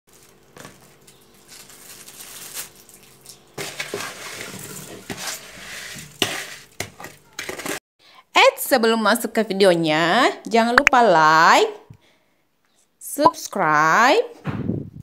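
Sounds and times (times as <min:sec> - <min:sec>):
spoon scraping cherries into pot: 0:03.6 - 0:07.8.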